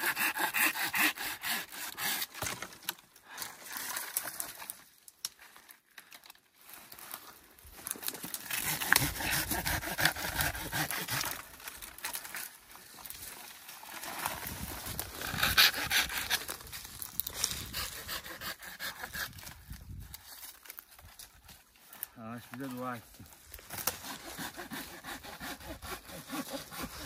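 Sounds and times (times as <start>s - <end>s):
hand saw cutting branch: 0.0s - 2.8s, 8.2s - 12.5s, 13.8s - 19.8s, 23.6s - 27.0s
branches dragged over pine needles: 11.4s - 17.9s.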